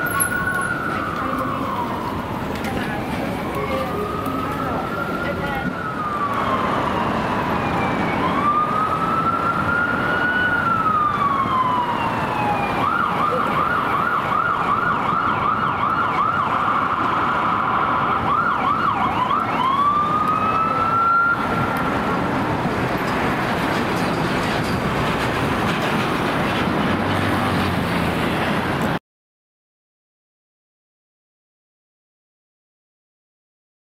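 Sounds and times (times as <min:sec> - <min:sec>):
ambulance siren wailing and yelping: 0:00.0 - 0:23.9
city traffic noise: 0:00.0 - 0:29.0.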